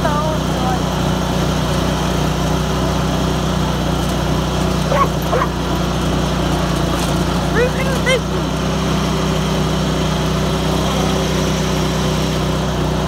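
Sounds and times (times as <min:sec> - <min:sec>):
tractor engine running: 0:00.0 - 0:13.0
short high yelps: 0:04.9 - 0:05.6.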